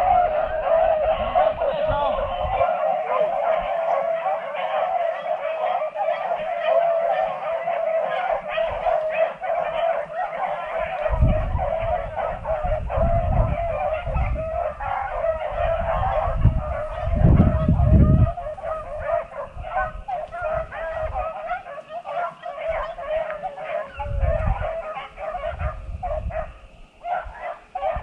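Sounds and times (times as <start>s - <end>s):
low microphone rumbles: 0.0s - 2.7s, 10.8s - 21.3s, 24.0s - 26.8s
hounds baying: 0.0s - 28.0s.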